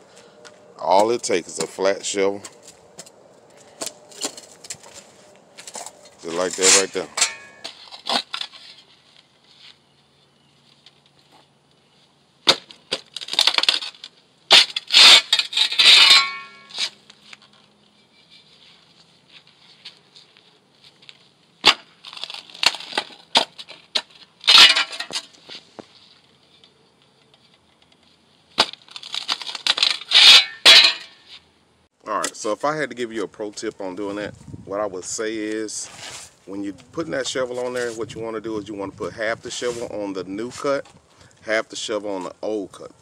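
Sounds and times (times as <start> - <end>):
shovel scraping on concrete: 3.7 - 9.8, 13.5 - 20.2, 21.6 - 26.1, 28.7 - 31.5, 35.7 - 36.4.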